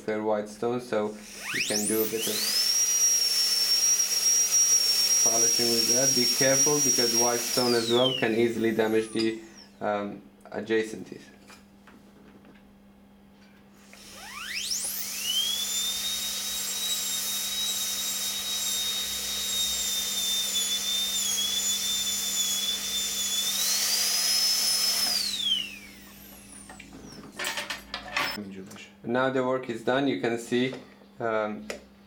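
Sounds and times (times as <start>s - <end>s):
dental drill whine: 1.2s - 9.8s, 13.8s - 28.4s.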